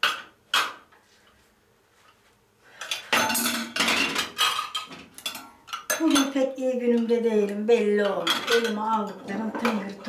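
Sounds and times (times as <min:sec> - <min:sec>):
lids clattering against glass jars: 0:02.8 - 0:07.1, 0:08.0 - 0:10.0.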